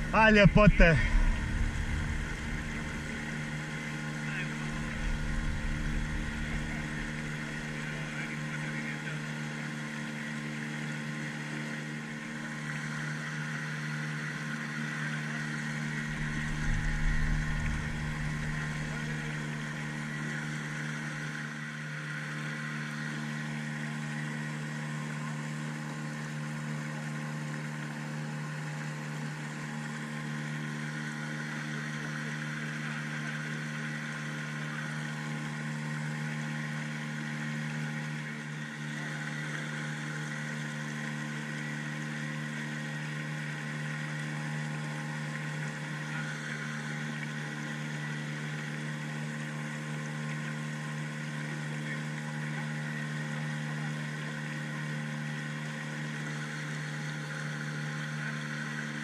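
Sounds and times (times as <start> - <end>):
low rumbling gusts: 0.0 - 8.1, 16.0 - 19.8
outboard engine droning: 0.0 - 59.0.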